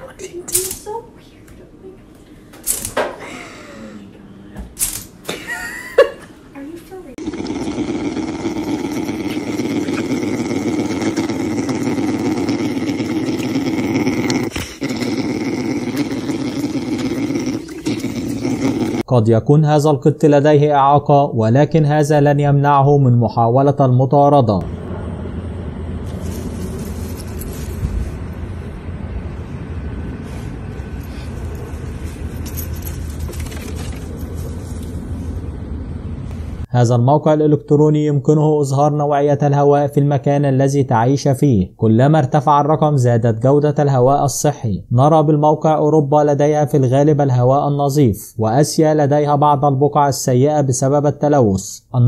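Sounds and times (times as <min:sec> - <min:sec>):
bear cub humming: 0:07.1 - 0:19.1
steady low rumbling: 0:24.5 - 0:36.7.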